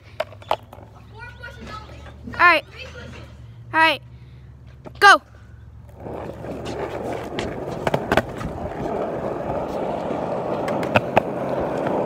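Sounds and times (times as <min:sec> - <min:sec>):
skateboard wheels rolling on concrete: 0:00.0 - 0:03.7, 0:04.5 - 0:12.0.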